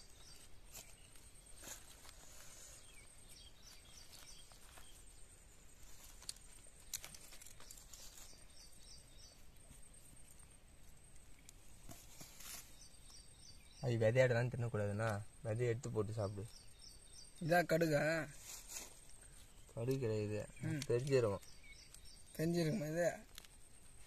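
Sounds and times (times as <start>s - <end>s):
soft clicks of handling fruit: 23.2s - 23.6s.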